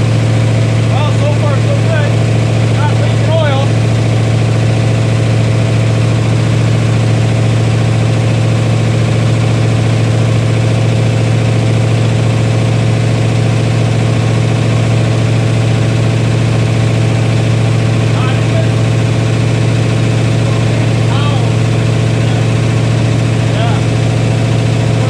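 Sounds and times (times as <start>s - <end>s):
engine running through straight pipes: 0.0s - 25.0s.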